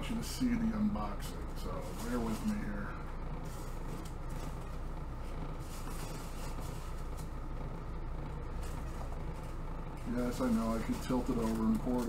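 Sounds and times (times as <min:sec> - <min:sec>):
low room hum: 0:00.0 - 0:12.0
plastic bag rustling: 0:01.5 - 0:07.4, 0:08.3 - 0:12.0
packing peanuts rustling: 0:01.6 - 0:04.7, 0:08.5 - 0:12.0.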